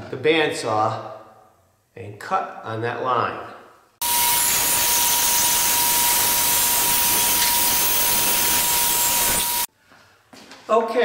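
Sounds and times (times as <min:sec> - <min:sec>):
bandsaw cutting plastic pipe: 0:04.0 - 0:09.7.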